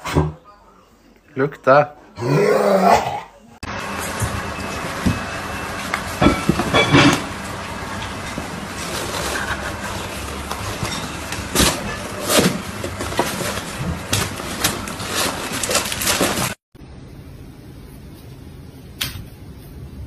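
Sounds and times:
background noise: 0.0 - 3.6
cardboard flaps rustling and knocking: 8.9 - 16.6.

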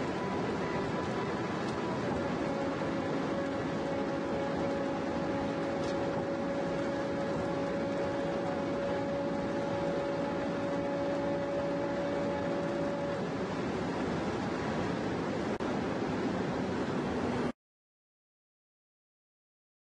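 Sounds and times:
engine tone: 0.0 - 17.5
wind and road noise: 0.0 - 17.5.

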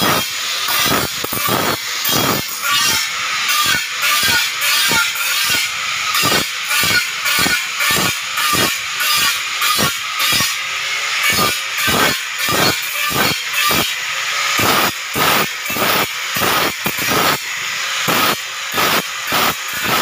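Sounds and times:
electric glass grinder grinding: 0.0 - 20.0.

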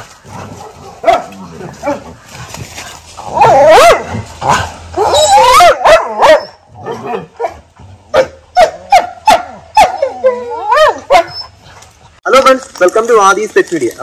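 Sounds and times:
dogs barking: 0.4 - 2.2, 3.3 - 11.6
dogs yelping whines: 3.3 - 4.2, 4.9 - 11.8.

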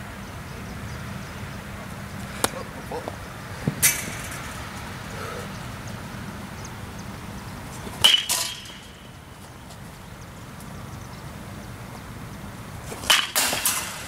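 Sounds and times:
bat hitting ball metallic ping: 2.4 - 2.7, 8.0 - 9.0, 13.0 - 14.0
ball landing knock: 2.4 - 4.1.

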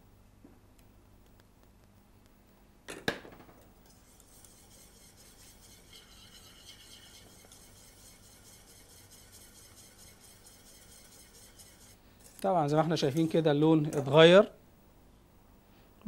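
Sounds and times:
wire whisk scraping saucepan: 3.8 - 14.4.

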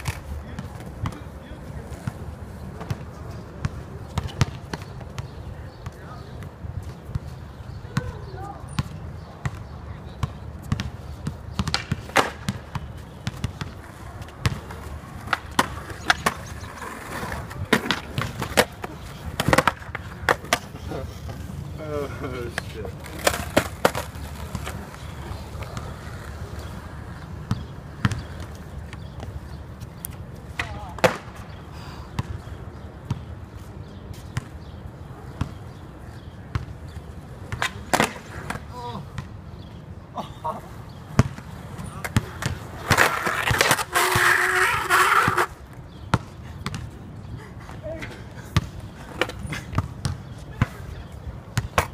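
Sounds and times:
skateboard wheels rolling: 0.0 - 5.4, 11.1 - 31.6, 35.1 - 38.7, 40.6 - 45.8
basketball bouncing on asphalt: 2.8 - 6.0, 6.8 - 17.1, 23.2 - 29.6, 32.2 - 33.3, 34.3 - 37.8, 41.1 - 43.7, 45.9 - 47.0, 49.7 - 51.9
basketball bouncing on hard court: 41.2 - 41.4, 46.1 - 46.9, 49.7 - 50.7.

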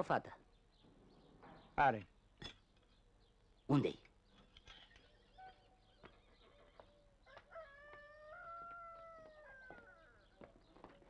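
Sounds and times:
rooster crowing: 6.8 - 10.5.

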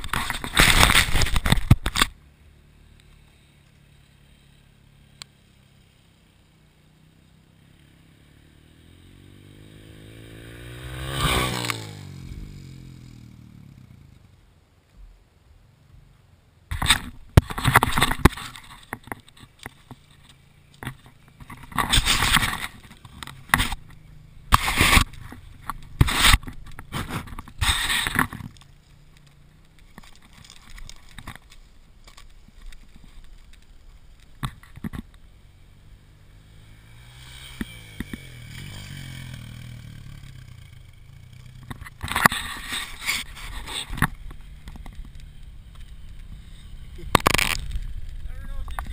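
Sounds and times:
camera handling scrapes and knocks: 0.0 - 2.1, 16.7 - 23.8, 24.5 - 28.7
distant dirt bike engine revving: 3.3 - 14.4, 20.0 - 28.5, 35.2 - 48.9.

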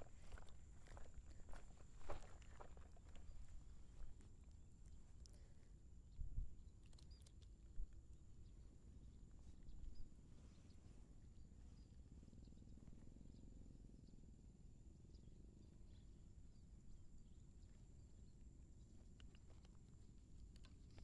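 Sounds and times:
soft ticks: 19.1 - 19.8.

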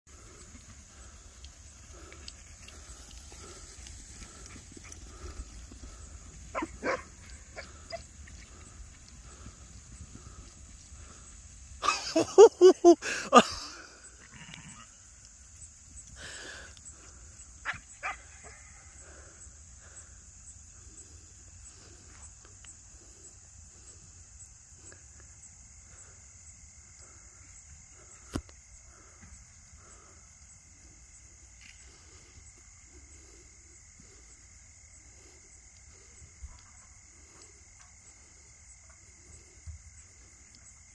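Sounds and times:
insects buzzing: 0.1 - 40.9
dog barking: 6.5 - 8.0, 17.6 - 18.6.

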